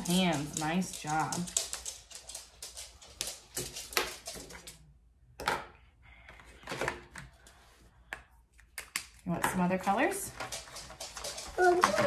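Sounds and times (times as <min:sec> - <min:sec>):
markers tapping on foil: 0:00.0 - 0:04.7.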